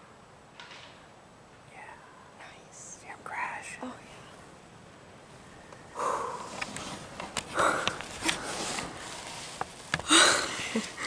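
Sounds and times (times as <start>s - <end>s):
clothing rustle: 6.4s - 11.0s.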